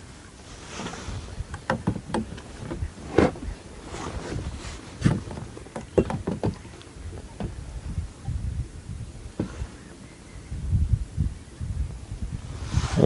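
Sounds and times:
gear knocking in a boat: 0:01.5 - 0:03.4, 0:05.0 - 0:07.6.

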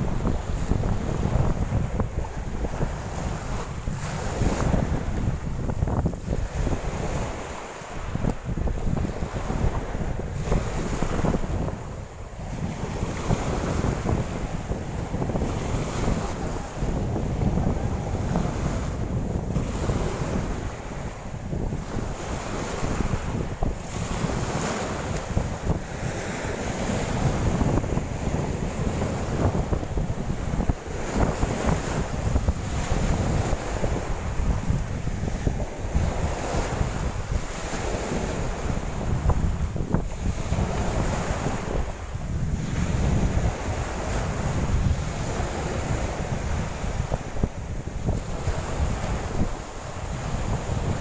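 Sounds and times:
small waves breaking on shore: 0:00.0 - 0:51.0
wind buffeting microphone: 0:00.0 - 0:51.0.

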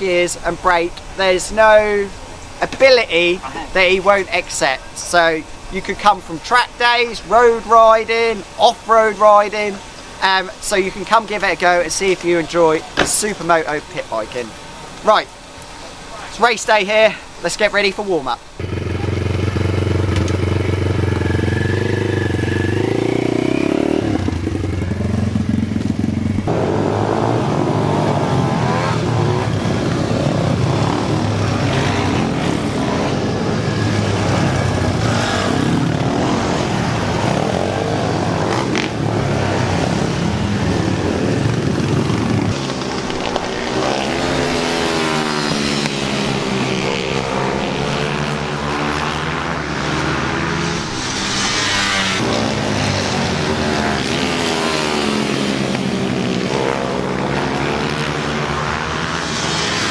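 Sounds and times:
motorbike engine revving: 0:18.6 - 0:59.9
several motorbikes revving on track: 0:18.6 - 0:59.9.

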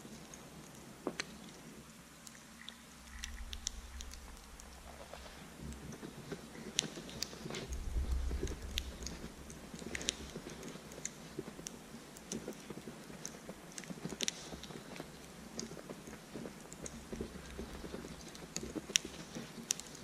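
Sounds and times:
low rumble: 0:03.1 - 0:05.9, 0:07.6 - 0:10.4.

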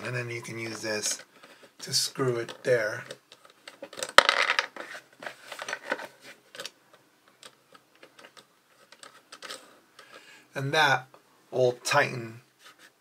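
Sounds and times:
small clicks and scraping: 0:00.6 - 0:10.3.

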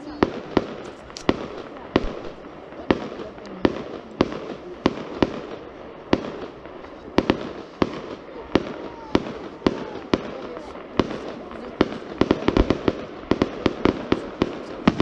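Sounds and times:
fireworks bursting with sharp bangs: 0:00.0 - 0:15.0.

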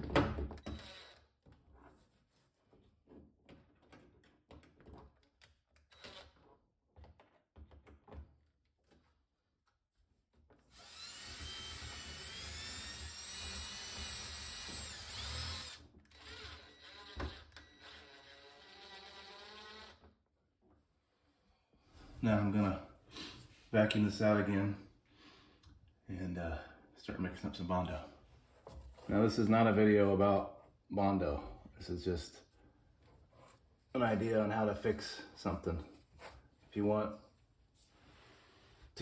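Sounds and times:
cordless drill whining: 0:00.6 - 0:01.3, 0:05.9 - 0:06.4, 0:10.7 - 0:20.1.

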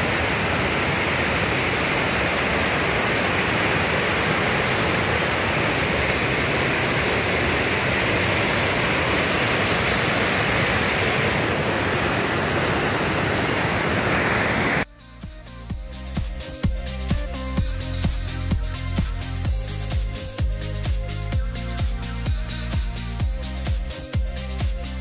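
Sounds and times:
waterfall rushing: 0:00.0 - 0:14.9
electronic dance music: 0:14.9 - 0:25.0.

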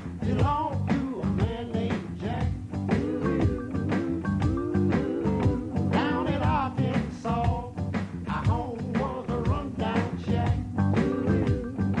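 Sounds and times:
person singing over a band: 0:02.9 - 0:07.6.

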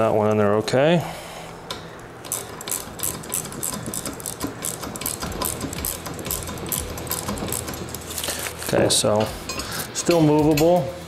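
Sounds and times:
ratchet clicking rapidly: 0:02.3 - 0:08.3.

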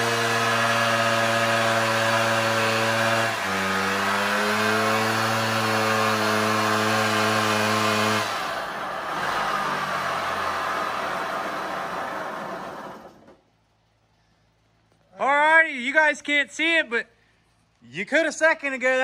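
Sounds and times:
small two-stroke engine running: 0:00.0 - 0:13.4.

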